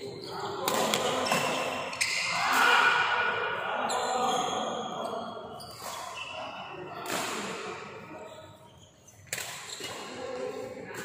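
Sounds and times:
rackets hitting shuttlecock: 0.6s - 2.2s, 7.0s - 7.7s, 9.2s - 10.1s.

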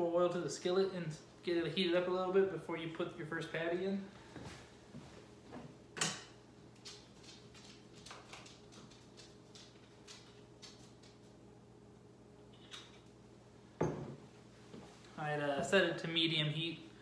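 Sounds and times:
dog claws clicking on floor: 6.7s - 11.4s.

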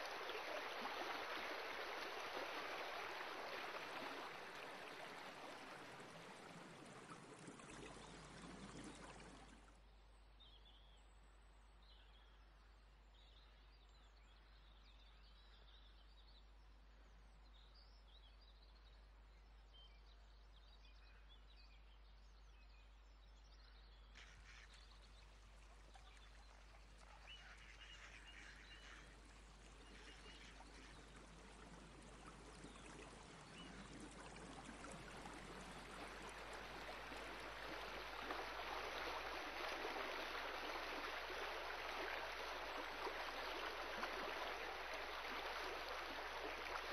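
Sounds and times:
water rushing: 0.0s - 9.7s, 24.4s - 46.9s.

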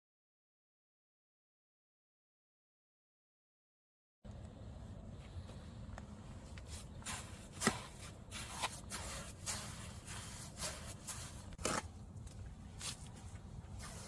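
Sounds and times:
trowel scraping wet mortar: 6.7s - 12.0s.

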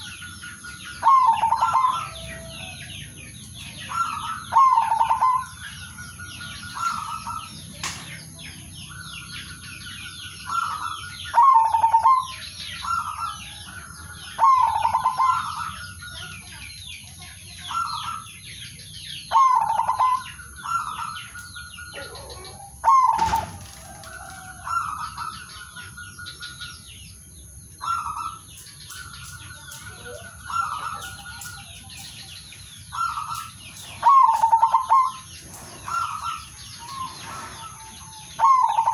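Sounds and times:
dove cooing: 0.0s - 7.6s, 10.4s - 13.5s, 14.4s - 15.9s, 19.3s - 21.2s, 21.9s - 25.8s, 29.8s - 32.0s, 32.9s - 38.9s
high bird chirping: 0.0s - 23.6s, 24.2s - 38.9s.

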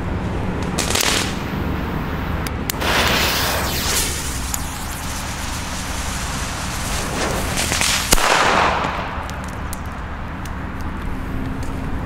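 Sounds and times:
firecracker bang: 2.8s - 9.5s.

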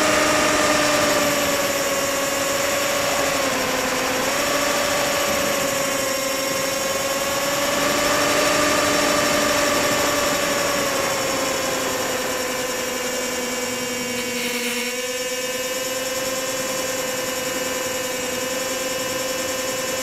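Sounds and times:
wind rush: 0.0s - 12.4s
electric motors and propellers droning: 0.0s - 20.0s.

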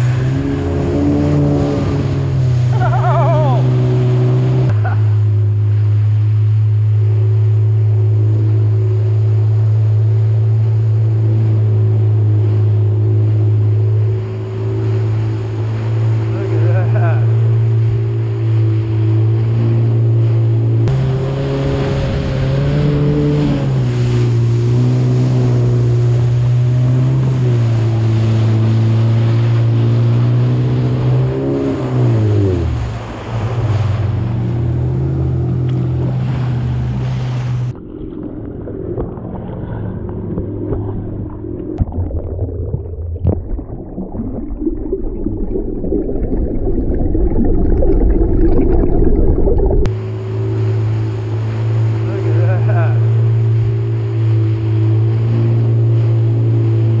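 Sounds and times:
jet ski engine: 0.0s - 42.6s, 49.8s - 57.0s.

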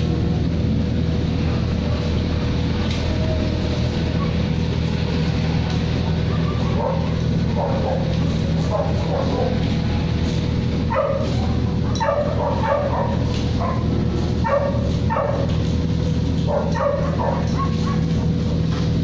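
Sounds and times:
steady low hum: 0.0s - 19.0s
dog barking: 6.3s - 9.6s, 10.9s - 15.5s, 16.4s - 18.1s.

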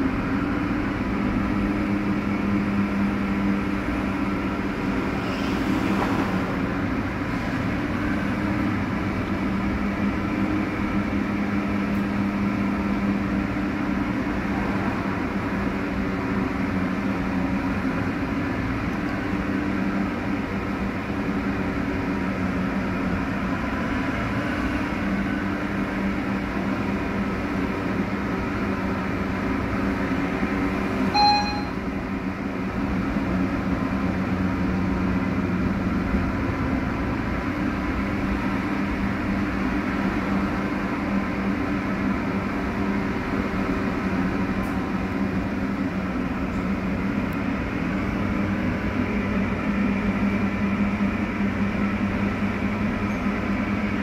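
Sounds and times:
tram rumbling on rails: 0.0s - 54.0s
short ringing tone: 31.1s - 31.9s.

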